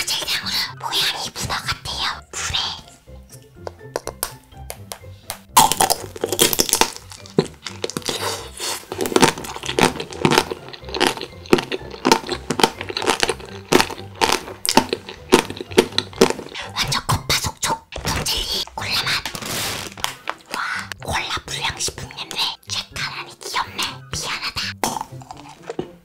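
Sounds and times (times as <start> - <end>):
wet chewing with clicks: 3.7 - 17.7, 24.7 - 26.0.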